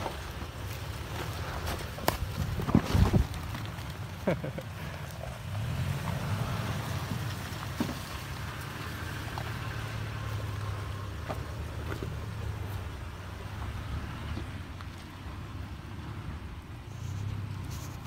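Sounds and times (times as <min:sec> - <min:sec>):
tyres clicking on stones: 0:00.0 - 0:05.4
truck engine running low: 0:00.0 - 0:18.0.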